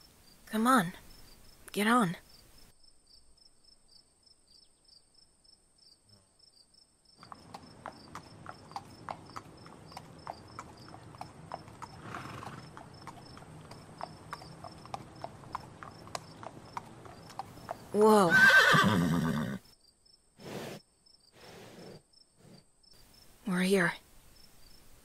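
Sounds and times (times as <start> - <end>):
crickets chirping: 0.0 - 25.0
horse hooves clip-clopping: 7.2 - 18.0
short breathy noise: 21.4 - 22.6.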